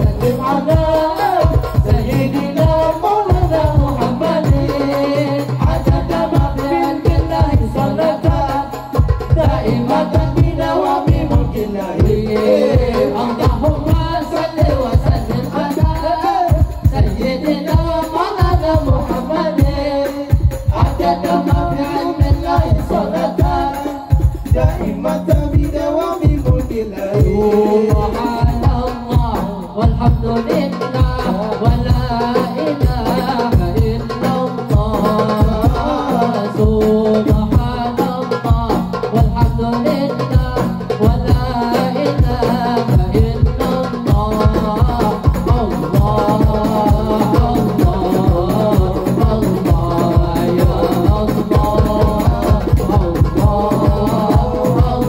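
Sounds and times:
frame drums playing rhythm: 0.0 - 55.0
men singing into microphones: 0.0 - 55.0
bass drum beating: 5.6 - 30.4.

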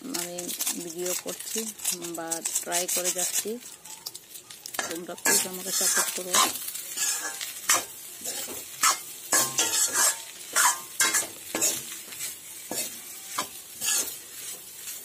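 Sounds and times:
food sizzling in oil: 0.0 - 15.0
metal spatula scraping a pan: 0.0 - 15.0.

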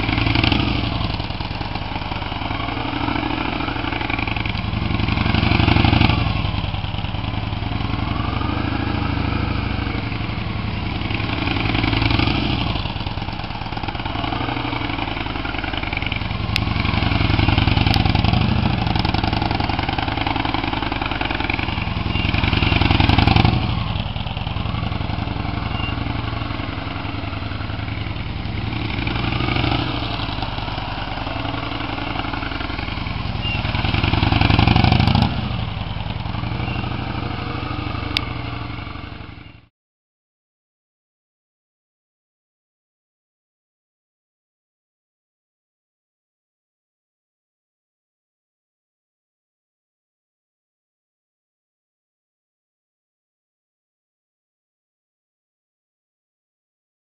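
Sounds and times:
motorcycle engine passing by: 0.0 - 39.7.

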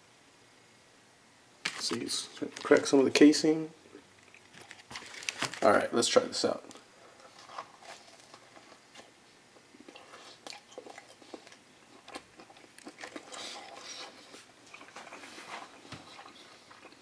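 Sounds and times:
person chewing: 7.2 - 17.0.

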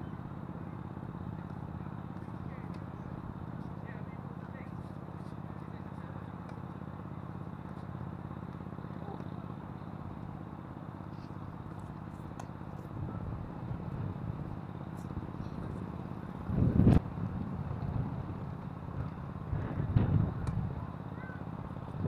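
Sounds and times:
wind buffeting microphone: 12.9 - 22.0.

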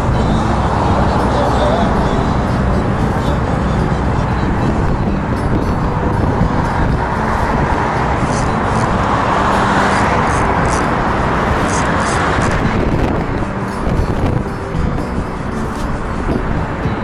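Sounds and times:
passing vehicles rushing: 0.0 - 17.0.

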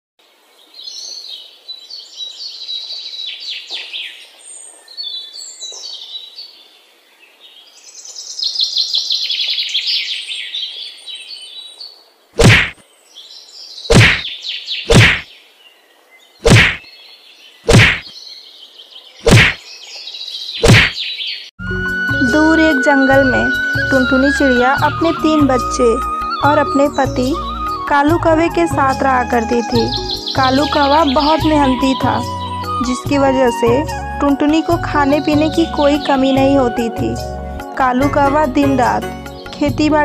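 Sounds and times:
birds chirping in trills: 0.6 - 21.5, 22.4 - 34.6
heavy wooden thwacks: 12.4 - 12.8, 13.9 - 14.3, 14.9 - 15.2, 16.4 - 16.8, 17.7 - 18.1, 19.2 - 19.6, 20.6 - 21.0.

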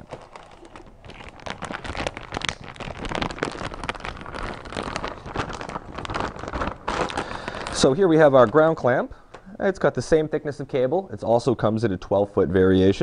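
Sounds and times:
plastic bag crinkling: 0.0 - 8.9.

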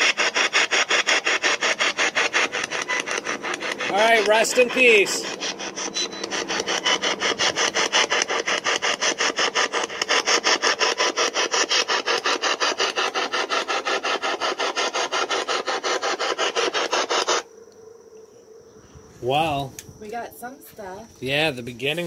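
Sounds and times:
radio static sweeping stations: 0.0 - 17.4.

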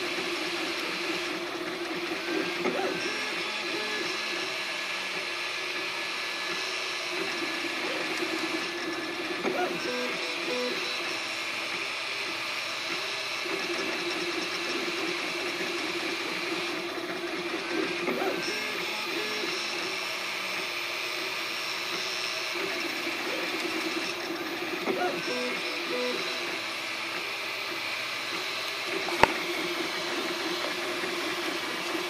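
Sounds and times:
stepper motors singing tones: 7.4 - 11.4, 22.6 - 27.2.

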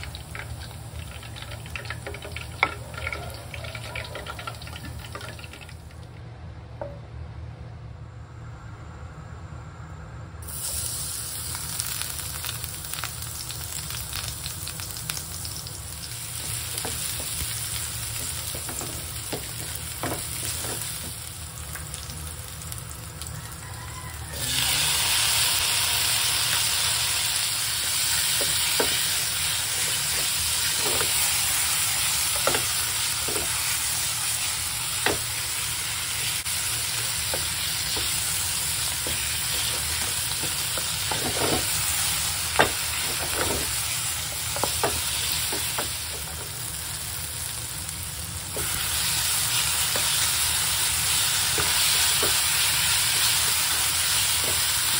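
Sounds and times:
onion and garlic sizzling in oil: 0.0 - 5.9, 10.4 - 54.9
wooden spatula scraping pan: 39.0 - 42.0.

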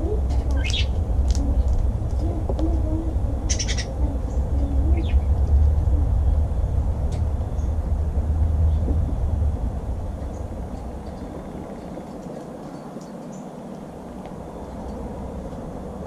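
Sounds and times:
bird chirp: 0.0 - 9.3, 10.2 - 15.0
steady low rumble: 0.0 - 16.0
wavering low bird calls: 0.0 - 16.0.

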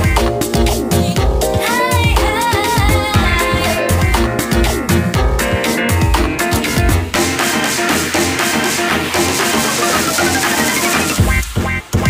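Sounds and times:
kick drum beat: 0.0 - 7.3
electronic music: 0.0 - 12.0.

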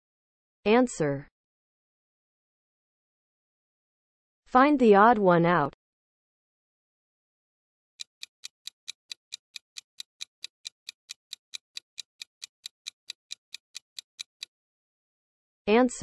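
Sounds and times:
clock-like ticking: 8.0 - 14.5.

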